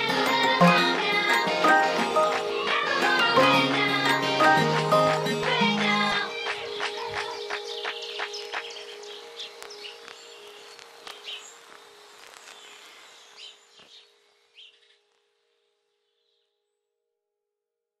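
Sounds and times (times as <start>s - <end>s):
soft background music chord: 0.0s - 12.7s
birds chirping: 4.4s - 15.0s.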